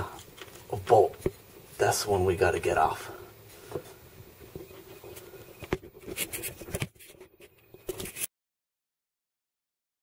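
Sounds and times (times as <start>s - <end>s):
background hiss: 0.0s - 8.1s
handling clicks and scrapes: 4.6s - 8.3s.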